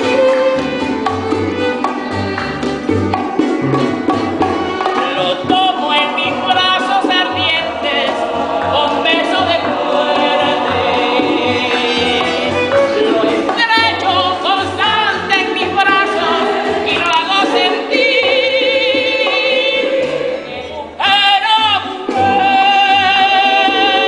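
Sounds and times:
woman singing with choir: 5.1 - 24.0.

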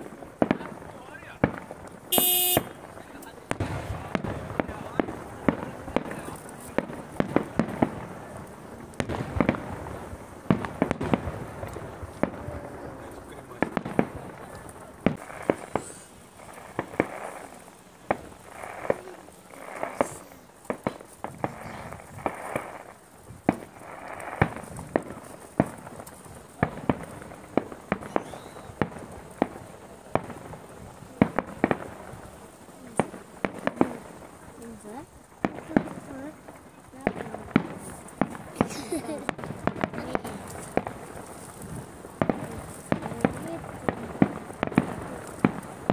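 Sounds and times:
firework shells bursting: 0.0 - 45.9.

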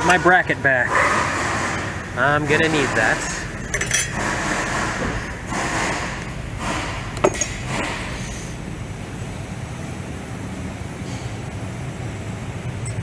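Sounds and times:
low workshop hum: 0.0 - 13.0
tools clinking in metal drawer: 3.6 - 4.4.

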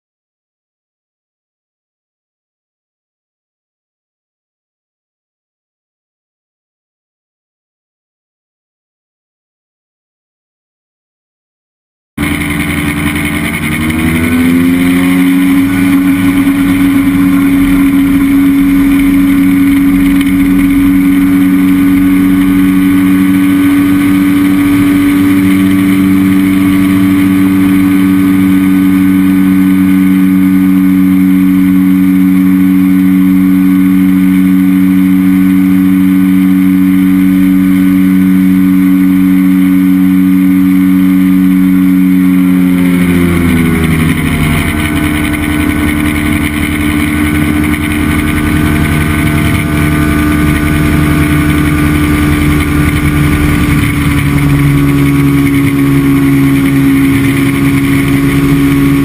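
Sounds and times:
light aircraft engine and propeller: 12.2 - 59.0.

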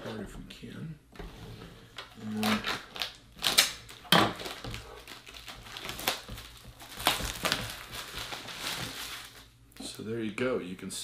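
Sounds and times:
plastic ripping: 2.0 - 9.9
plastic bag crinkling: 2.1 - 9.6.

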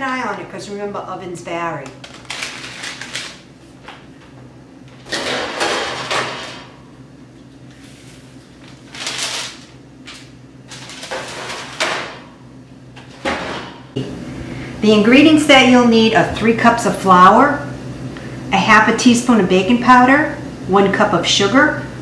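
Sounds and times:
baking sheets scraping and clattering: 5.0 - 6.7, 7.7 - 12.3.

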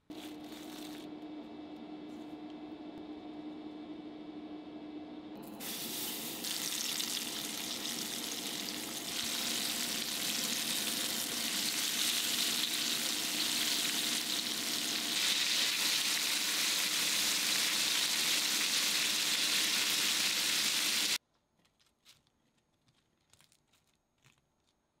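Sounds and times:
chicken frying in oil: 5.6 - 21.2.

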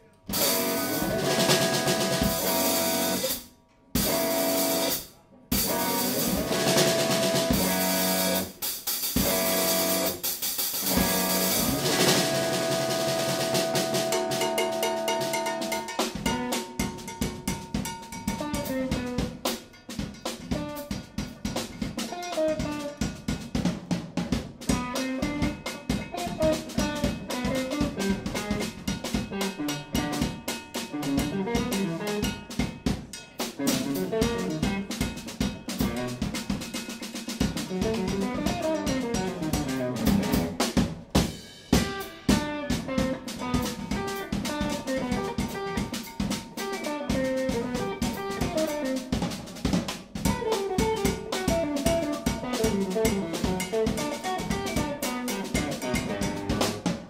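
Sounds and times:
drum kit playing: 0.0 - 57.0
electric guitar line: 0.3 - 3.2, 4.0 - 4.9, 5.6 - 8.5, 9.2 - 10.2, 10.8 - 16.5, 41.7 - 49.2.

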